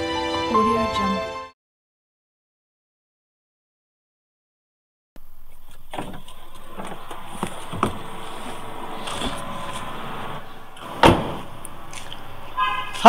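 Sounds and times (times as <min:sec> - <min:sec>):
car door slamming: 0:05.9 - 0:10.2, 0:10.8 - 0:11.8.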